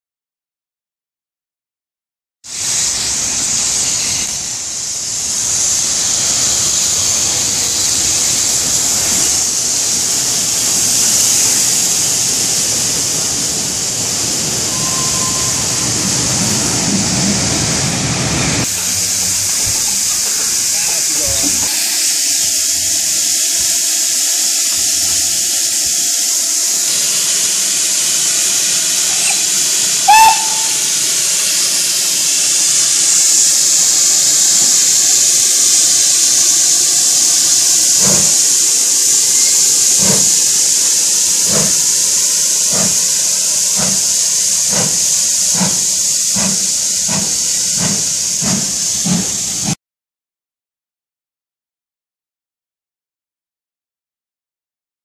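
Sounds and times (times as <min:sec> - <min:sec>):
steam hissing: 0:02.4 - 0:49.8
steam locomotive whistle toot: 0:14.6 - 0:15.8, 0:26.4 - 0:31.7
locomotive exhaust beats: 0:36.5 - 0:49.8.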